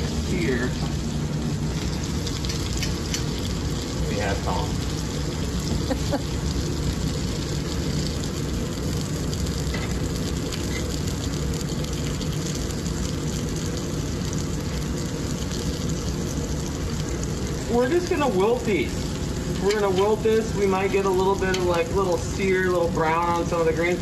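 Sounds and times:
constant low hum: 0.0 - 24.0
food sizzling on griddle: 0.0 - 24.0.

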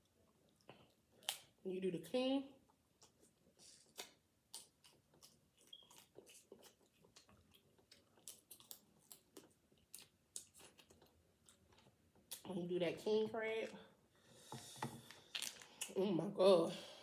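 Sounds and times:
person chewing: 2.7 - 12.4.

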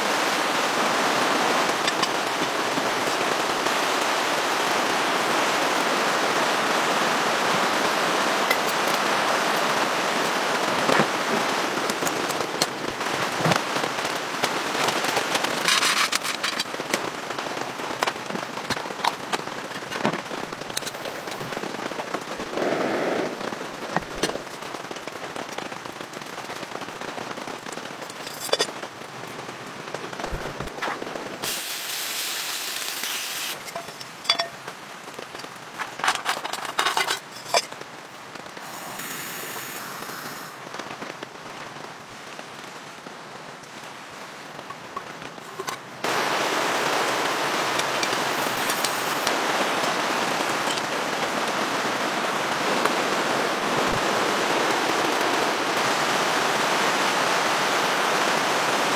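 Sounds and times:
crackling wood fire: 0.0 - 58.9
heavy rain: 0.0 - 58.9
short hiss: 31.4 - 33.6, 38.6 - 40.6
cookware clicking and knocking: 33.6 - 34.6.

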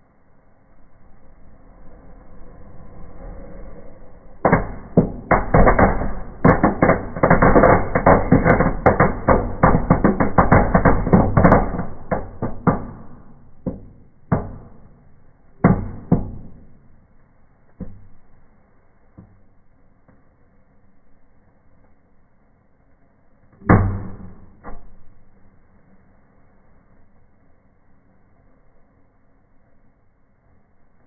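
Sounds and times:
firework pops and cracks: 4.5 - 17.0.

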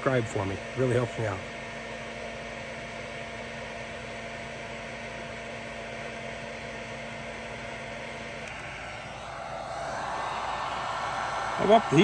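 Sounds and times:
low hum: 8.4 - 12.0.

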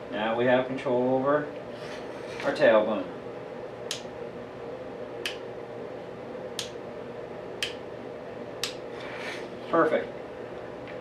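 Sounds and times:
small switch clicking: 3.9 - 4.1, 6.6 - 6.8, 7.6 - 7.8, 8.6 - 8.8.

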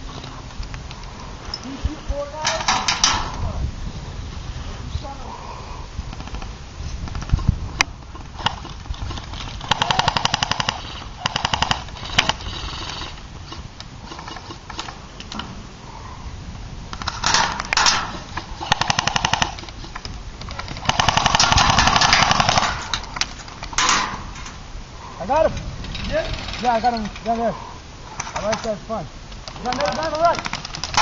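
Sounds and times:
airsoft guns firing bursts: 6.1 - 7.5, 8.2 - 15.0, 16.9 - 24.1, 25.8 - 27.0, 29.3 - 31.0.

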